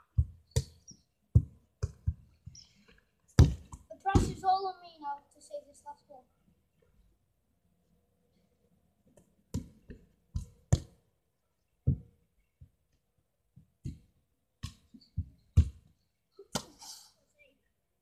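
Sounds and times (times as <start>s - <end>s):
football being kicked: 3.4s - 4.4s, 9.5s - 11.0s, 13.8s - 15.8s.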